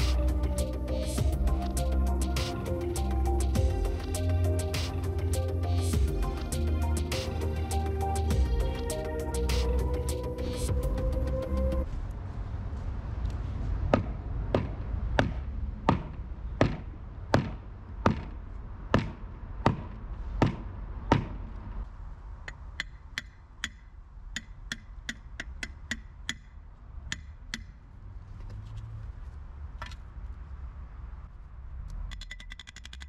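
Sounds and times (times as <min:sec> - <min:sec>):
hammer striking wooden board: 0:13.9 - 0:21.4.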